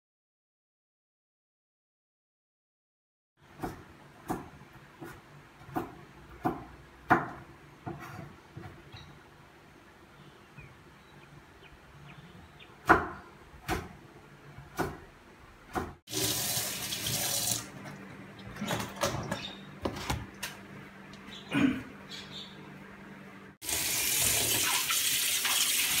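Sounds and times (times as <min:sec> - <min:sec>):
kitchen tap running: 0:16.1 - 0:17.8, 0:23.6 - 0:26.0.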